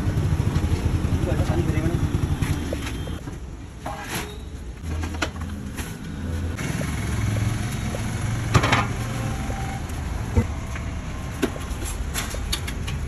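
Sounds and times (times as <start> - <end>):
street traffic: 0.0 - 13.0
vehicle engine running: 6.3 - 10.8.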